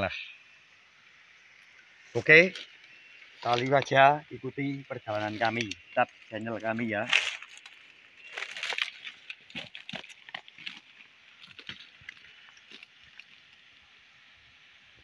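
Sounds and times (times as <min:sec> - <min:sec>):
faint steady hiss: 0:00.0 - 0:15.0
footsteps crunching leaf litter: 0:03.4 - 0:04.0, 0:05.0 - 0:13.6.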